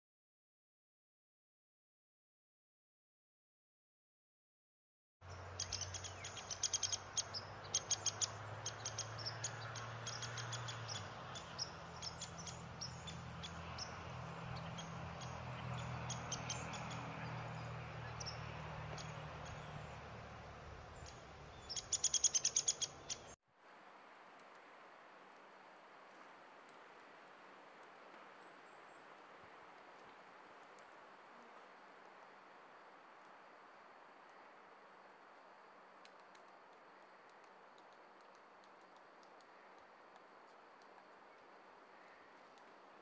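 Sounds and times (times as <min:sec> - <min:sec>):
woodpecker ticking: 0:05.3 - 0:13.9, 0:14.6 - 0:23.3.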